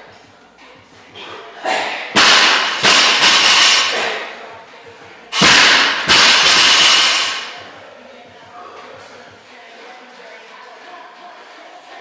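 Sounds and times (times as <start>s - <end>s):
barbells crashing on concrete: 2.1s - 4.3s, 5.3s - 7.6s.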